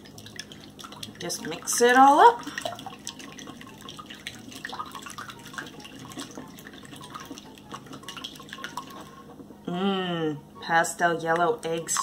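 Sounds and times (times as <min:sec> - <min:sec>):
whisk beating eggs in glass bowl: 0:00.0 - 0:09.3
liquid slapping and sloshing: 0:00.0 - 0:09.4, 0:11.3 - 0:12.0.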